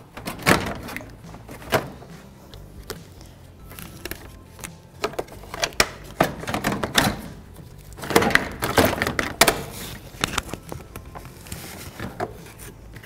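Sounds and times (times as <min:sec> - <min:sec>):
plastic fan shroud knocking and scraping: 0:00.0 - 0:02.2, 0:05.0 - 0:12.7.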